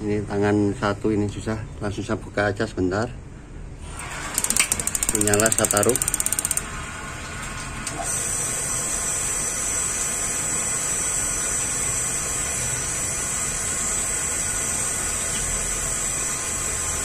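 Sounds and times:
spark igniter clicking rapidly: 4.2s - 6.6s.

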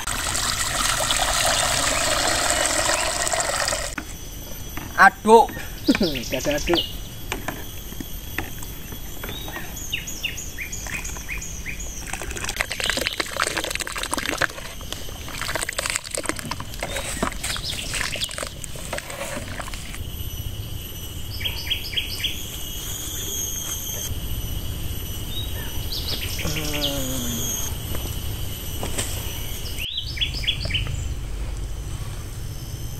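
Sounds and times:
porridge sloshing: 0.0s - 4.0s, 10.9s - 20.0s
high insect drone: 0.0s - 32.9s
bird chirps: 4.8s - 7.2s.

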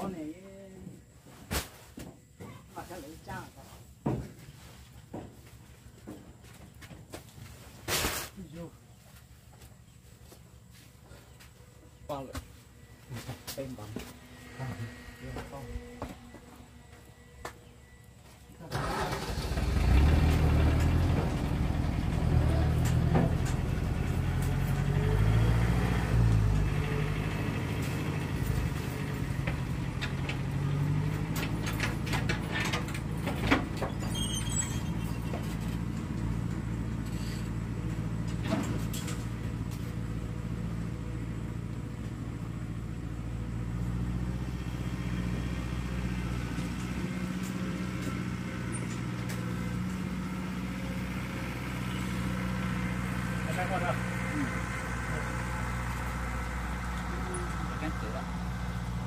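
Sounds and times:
motor engine idling: 45.5s - 59.0s.

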